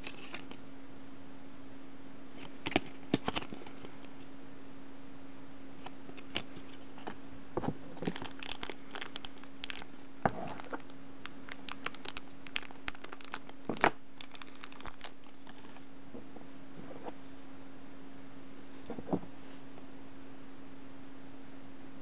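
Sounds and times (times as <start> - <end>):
plastic wrapper crinkling and tearing: 7.9 - 15.9.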